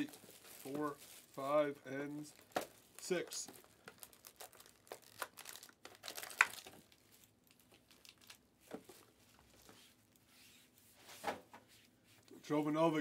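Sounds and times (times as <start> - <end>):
foil packs crinkling: 0.0 - 8.4.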